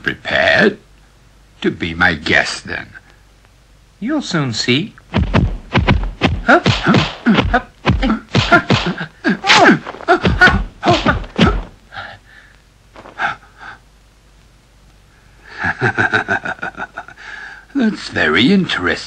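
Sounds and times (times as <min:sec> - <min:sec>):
man speaking: 0:01.6 - 0:03.0, 0:04.0 - 0:05.0, 0:09.3 - 0:11.8, 0:17.7 - 0:19.0
punch and slap impacts: 0:05.1 - 0:11.8
fighters shouting and grunting: 0:06.3 - 0:11.8.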